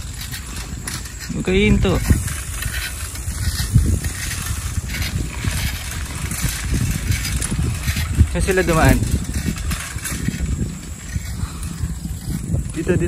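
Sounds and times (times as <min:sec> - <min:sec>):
bicycle tyres on gravel: 0:00.0 - 0:13.0
wind buffeting microphone: 0:00.0 - 0:13.0.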